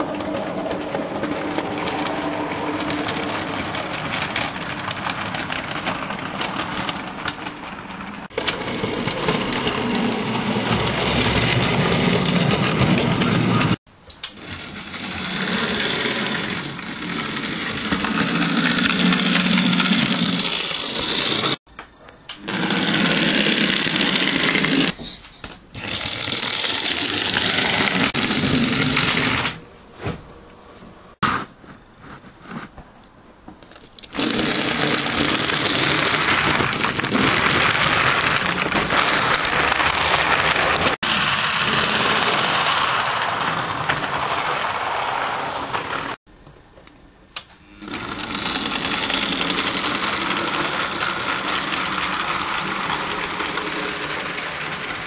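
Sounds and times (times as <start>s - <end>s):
model train wheels clattering: 0.0s - 21.6s, 33.7s - 46.2s, 47.9s - 55.0s.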